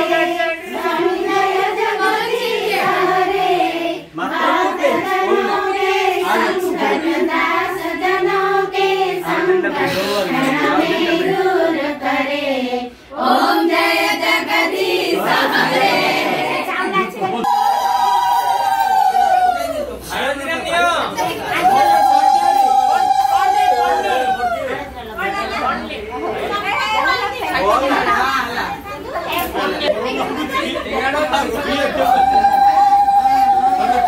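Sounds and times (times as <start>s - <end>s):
voices singing together: 0.0s - 19.5s.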